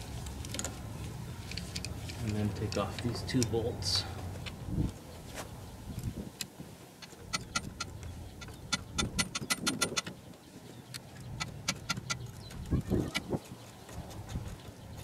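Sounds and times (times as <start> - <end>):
hand ratchet clicking: 7.0 - 10.1, 11.4 - 12.5.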